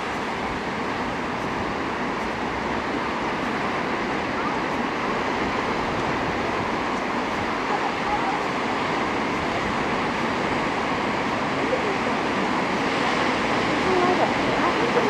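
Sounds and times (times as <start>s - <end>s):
ocean surf breaking: 0.0s - 15.0s.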